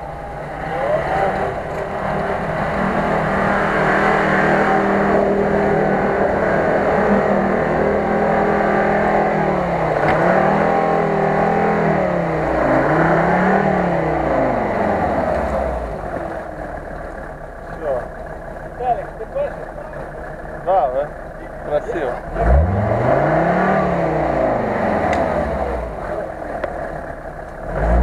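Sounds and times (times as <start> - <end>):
engine straining under load: 0.0 - 28.0.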